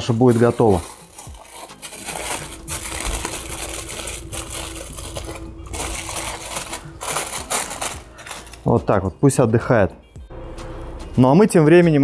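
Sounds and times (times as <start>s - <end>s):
aluminium foil crinkling: 0.0s - 9.0s.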